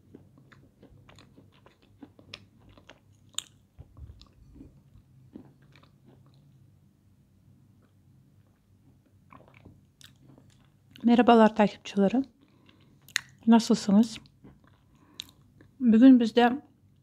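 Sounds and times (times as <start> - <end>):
chewing crunchy clay: 0.0 - 6.6
faint low hum: 0.0 - 17.0.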